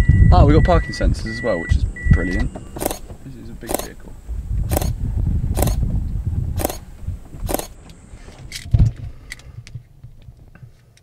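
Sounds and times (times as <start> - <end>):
low rumble: 1.2 - 8.2
camera shutter clicks: 2.8 - 3.0, 3.7 - 4.0, 4.7 - 5.0, 5.6 - 5.8, 6.6 - 6.8, 7.5 - 7.8.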